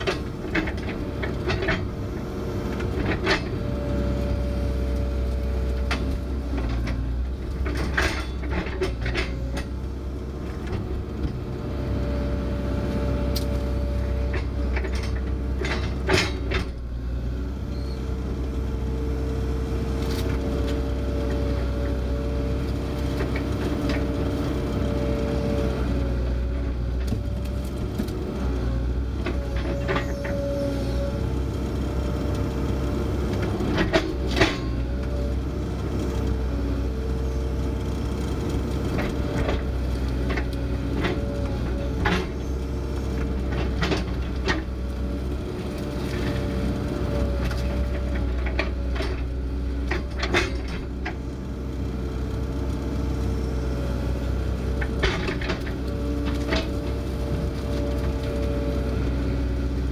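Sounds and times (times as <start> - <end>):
excavator bucket clanking: 0.0 - 2.0, 5.9 - 9.8, 14.0 - 16.8, 29.2 - 30.5, 33.6 - 34.8, 39.0 - 44.9, 47.3 - 51.2
diesel engine running: 0.0 - 59.9.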